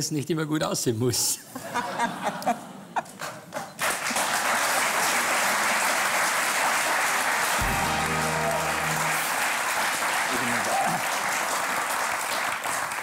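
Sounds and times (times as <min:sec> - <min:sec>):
audience applauding: 0:03.8 - 0:13.0
music with low bass line: 0:07.6 - 0:09.4.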